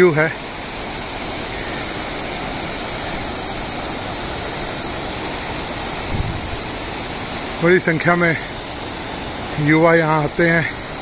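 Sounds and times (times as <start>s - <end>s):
waterfall rushing: 0.0s - 11.0s
low bump: 6.0s - 6.7s.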